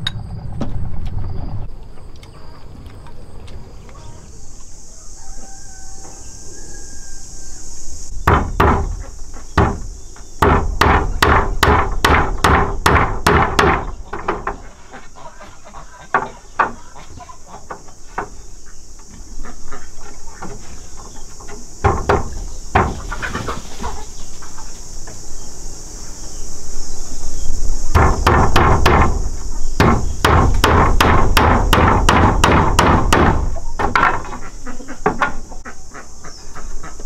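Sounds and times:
rooster crowing faintly: 0:03.9 - 0:07.8
hammer knocking on bamboo: 0:08.2 - 0:09.0, 0:09.6 - 0:14.6, 0:21.8 - 0:23.0, 0:27.9 - 0:29.2, 0:29.8 - 0:34.4.

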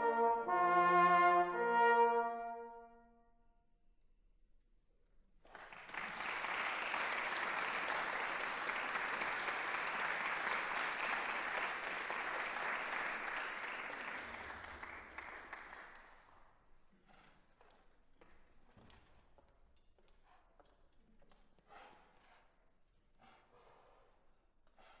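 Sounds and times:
audience applauding: 0:05.5 - 0:16.4.

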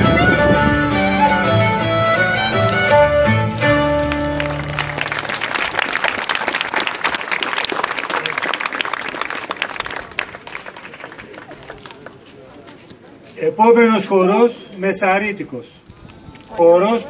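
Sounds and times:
live folk dance music: 0:00.0 - 0:07.7
audience applauding: 0:03.9 - 0:12.3.

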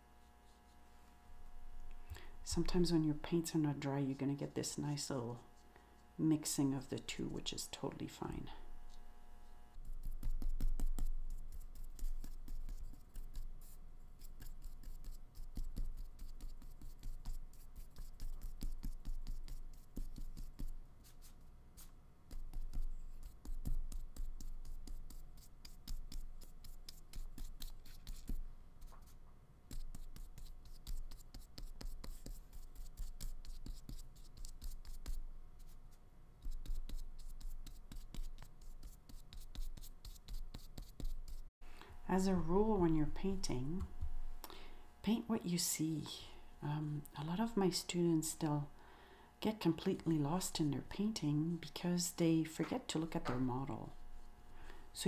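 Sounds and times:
paintbrush scratching on paper: 0:00.0 - 0:01.0, 0:08.5 - 0:41.5.

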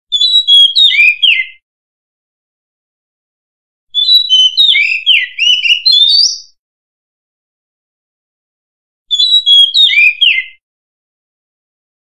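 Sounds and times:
bird singing whistled notes: 0:00.1 - 0:01.6, 0:03.9 - 0:06.6, 0:09.1 - 0:10.6.

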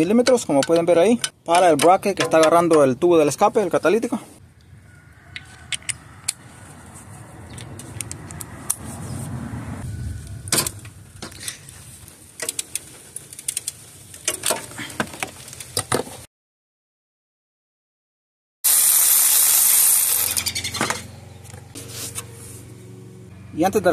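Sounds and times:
low rushing noise: 0:06.0 - 0:12.0.

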